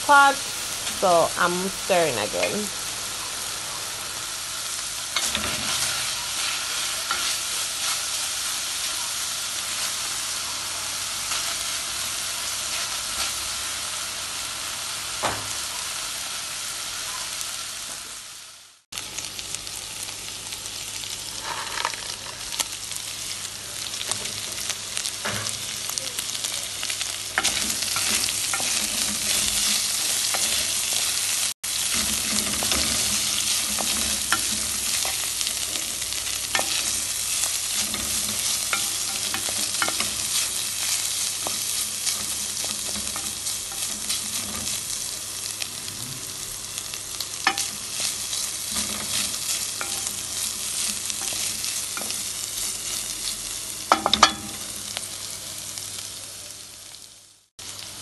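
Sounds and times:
meat sizzling in a pot: 0.0s - 58.0s.

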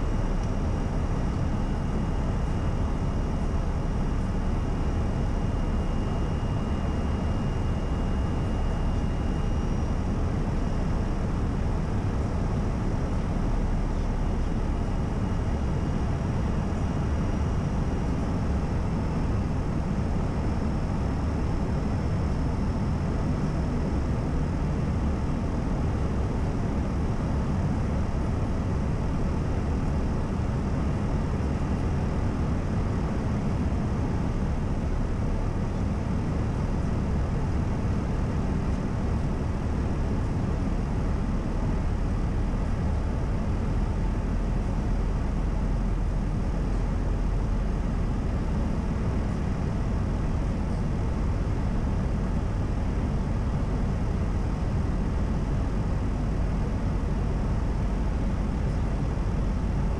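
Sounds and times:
jet engine rumble: 0.0s - 59.9s.

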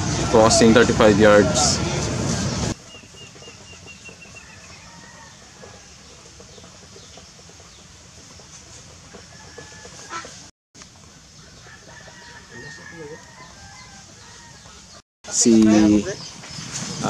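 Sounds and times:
chickens clucking: 2.8s - 16.9s.

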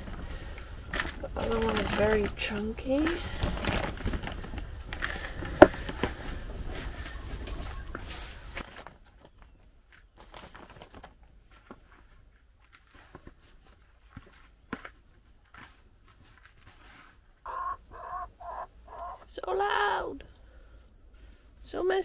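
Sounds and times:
compost rustling: 0.0s - 21.6s.

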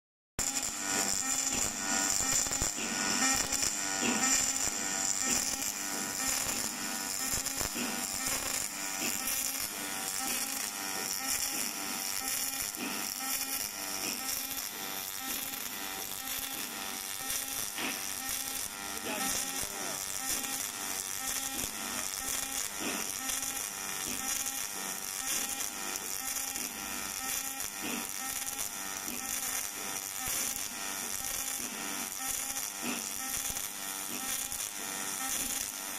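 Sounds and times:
welding arc buzzing and crackling: 0.4s - 35.9s.

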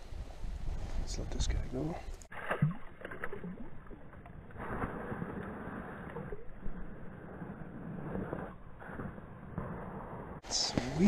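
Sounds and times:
water splashing and sloshing: 2.0s - 9.0s.

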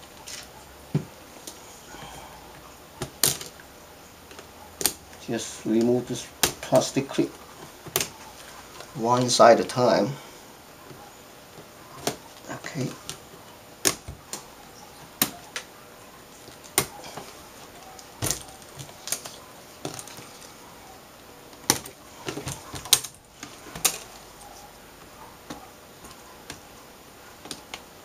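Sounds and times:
plastic clips snapping: 4.3s - 5.0s, 18.0s - 20.2s
handling rustle: 16.3s - 28.0s.

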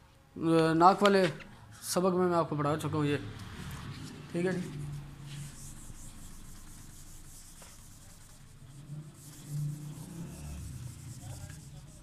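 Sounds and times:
eraser rubbing on whiteboard: 3.7s - 12.0s.

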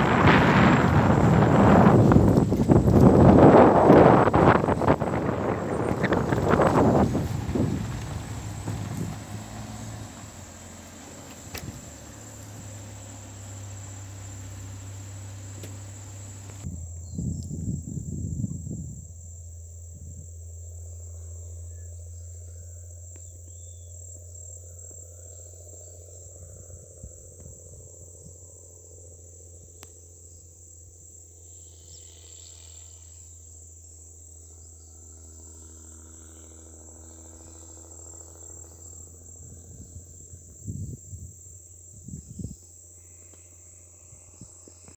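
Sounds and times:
low rumbling: 0.0s - 27.9s
high-pitched insect chorus: 0.0s - 44.9s.

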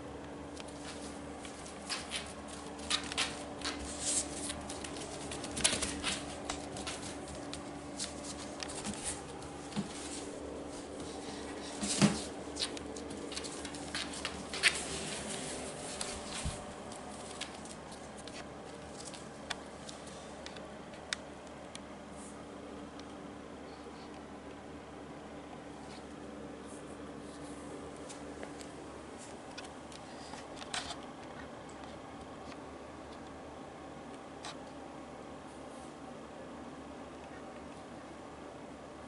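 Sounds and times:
faint steady hum: 0.0s - 39.0s
puppy paws pattering on mats: 0.2s - 22.4s, 25.7s - 33.3s.

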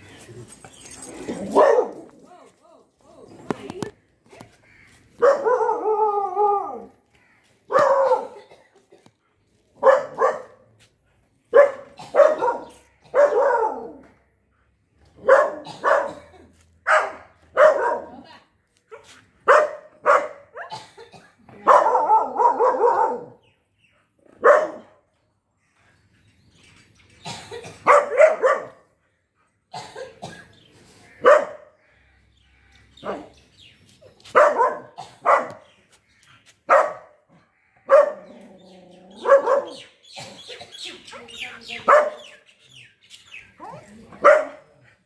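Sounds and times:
dog barking: 1.4s - 2.1s, 5.2s - 6.2s, 7.7s - 8.4s, 9.8s - 10.6s, 11.5s - 14.0s, 15.2s - 16.3s, 16.9s - 18.3s, 19.4s - 20.8s, 21.6s - 23.4s, 24.4s - 25.0s, 27.8s - 28.8s, 31.2s - 31.7s, 34.3s - 35.6s, 36.7s - 37.2s, 37.9s - 38.3s, 39.2s - 39.9s, 41.8s - 42.4s, 44.2s - 44.8s.

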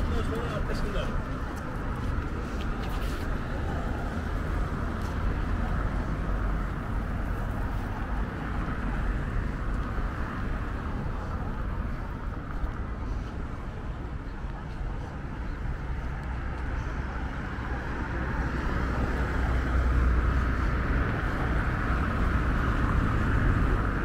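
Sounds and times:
low street rumble and hiss: 0.0s - 24.0s
faint voices of people: 11.0s - 18.5s.

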